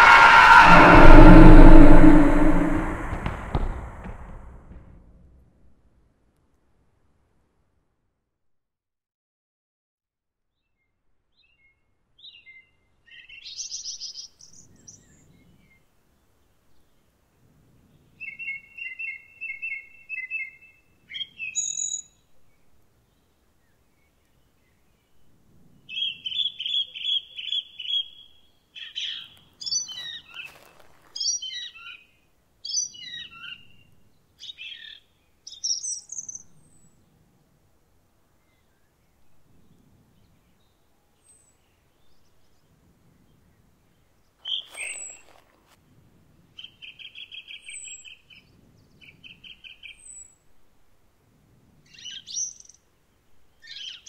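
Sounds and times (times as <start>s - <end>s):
brief rush of noise: 0.0s - 4.6s
songbirds singing: 25.9s - 36.9s, 38.4s - 45.4s, 46.6s - 50.4s, 51.9s - 54.0s.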